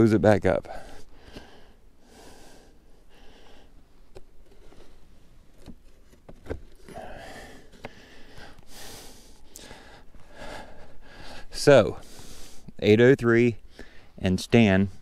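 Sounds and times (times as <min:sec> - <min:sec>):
man breathing hard: 0:00.7 - 0:03.9, 0:06.8 - 0:12.8, 0:13.6 - 0:14.2
knocks and crunches of wooden cover: 0:04.1 - 0:08.1.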